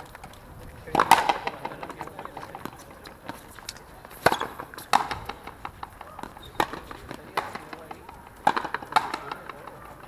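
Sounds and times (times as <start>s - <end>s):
racket striking ball: 0.9s - 10.0s
ball hitting wall: 4.2s - 9.7s.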